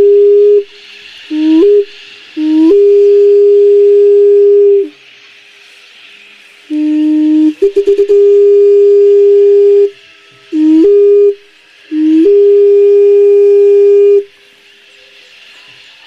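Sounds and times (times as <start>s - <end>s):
faint hiss: 0.0s - 16.0s
wind instrument long notes: 6.7s - 14.3s.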